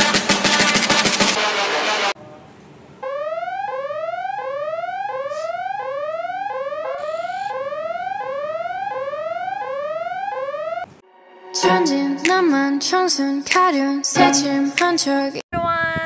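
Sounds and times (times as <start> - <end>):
electronic rising alarm tone: 3.0 - 12.3.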